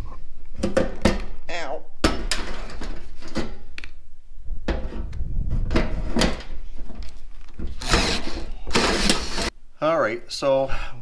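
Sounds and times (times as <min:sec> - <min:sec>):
drill motor running: 0:07.8 - 0:09.5
hole saw grinding through metal: 0:07.8 - 0:09.5.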